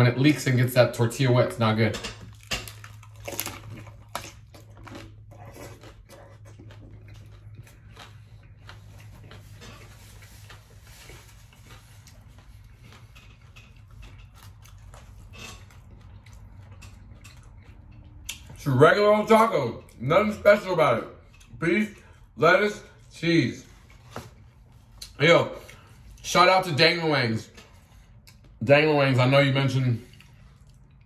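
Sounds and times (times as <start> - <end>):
crunchy taco bites: 2.1 - 18.6
chewing: 2.2 - 18.6, 30.0 - 31.0.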